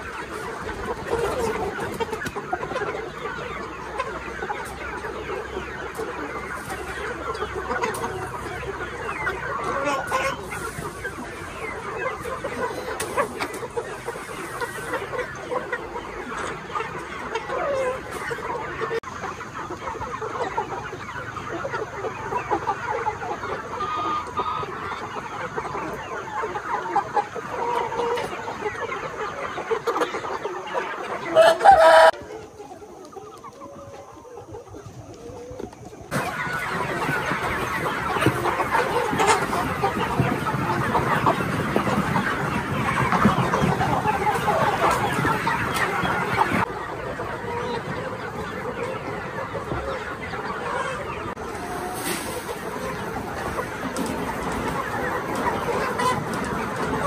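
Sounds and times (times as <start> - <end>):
chickens clucking and chirping: 0.0 - 57.0.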